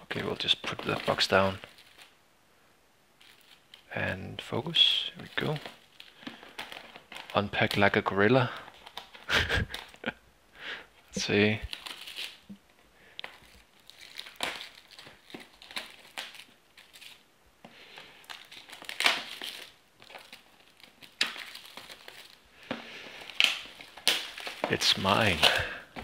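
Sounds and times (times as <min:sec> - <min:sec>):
plastic shrink wrap crinkling: 0:00.0 - 0:02.2, 0:03.2 - 0:10.2, 0:11.2 - 0:26.0.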